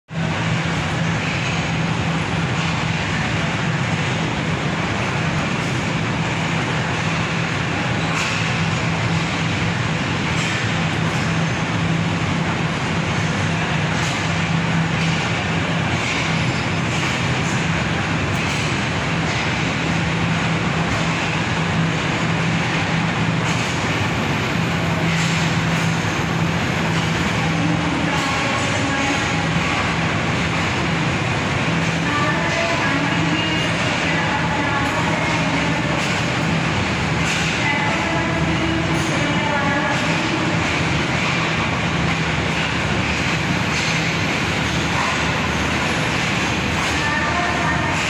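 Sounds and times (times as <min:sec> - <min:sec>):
constant low hum: 0:00.1 - 0:48.0
diesel train engine drone: 0:00.1 - 0:48.0.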